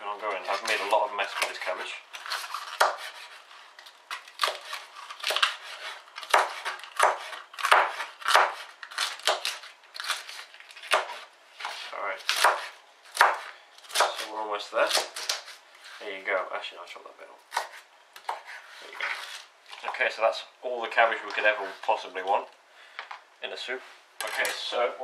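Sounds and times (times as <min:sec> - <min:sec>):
knife chopping on plastic board: 0:02.7 - 0:03.3, 0:04.4 - 0:09.6, 0:10.9 - 0:14.3.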